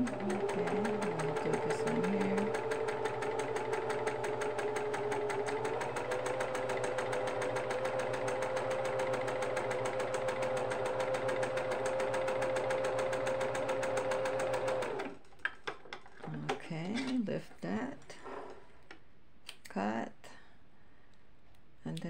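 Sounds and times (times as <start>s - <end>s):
sewing machine needle ticking: 0.0s - 15.1s
sewing machine motor hum: 0.0s - 15.2s.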